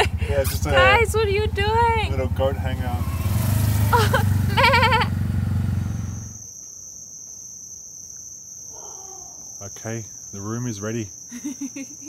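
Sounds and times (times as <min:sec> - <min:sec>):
engine humming: 0:00.0 - 0:06.4
crickets chirring: 0:00.0 - 0:12.0.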